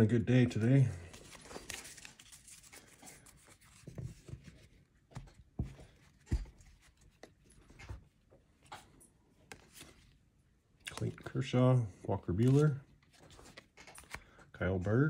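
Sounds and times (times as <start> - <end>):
trading cards sliding and rubbing: 0.6 - 5.3, 12.4 - 14.2.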